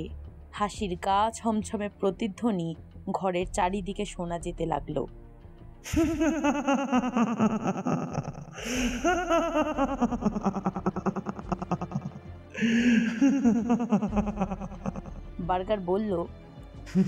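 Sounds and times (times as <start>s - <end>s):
sinister echoing laughter: 5.9s - 15.2s.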